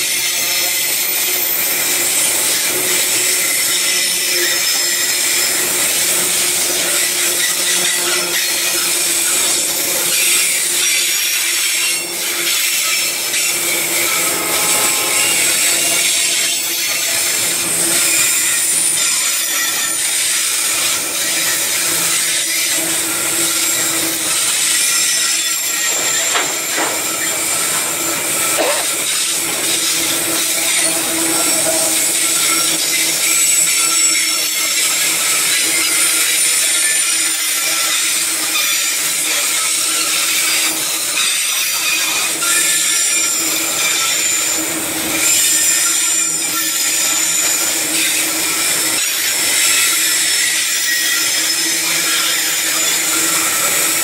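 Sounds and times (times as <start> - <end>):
steel wheels rushing on rail: 0.0 - 54.0
high-pitched wheel squealing: 10.1 - 40.4.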